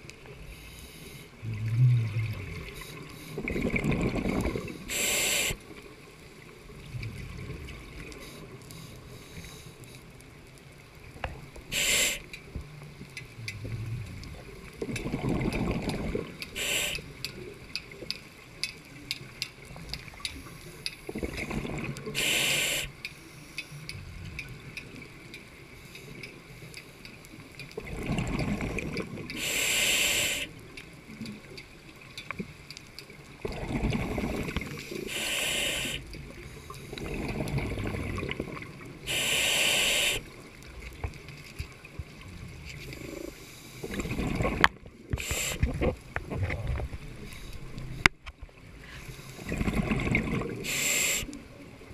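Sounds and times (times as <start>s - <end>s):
exhale bubbling rumble: 1.4s - 2.8s, 3.4s - 5.4s, 13.3s - 16.9s, 21.1s - 22.4s, 23.9s - 24.7s, 27.8s - 29.4s, 33.4s - 35.9s, 37.0s - 39.4s, 41.9s - 47.2s, 49.4s - 51.1s.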